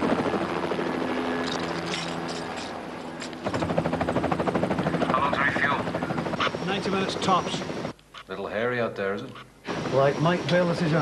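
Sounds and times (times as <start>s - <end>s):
helicopter rotor chop: 0.0s - 7.9s.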